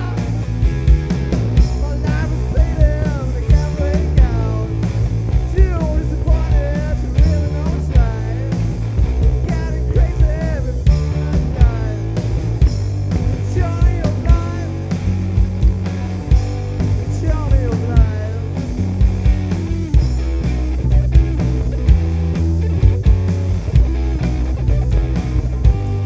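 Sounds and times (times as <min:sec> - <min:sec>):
bass guitar: 0:00.0 - 0:26.0
drum beat: 0:00.0 - 0:26.0
person singing: 0:01.7 - 0:08.7, 0:09.3 - 0:12.2, 0:13.3 - 0:14.9, 0:16.9 - 0:18.7.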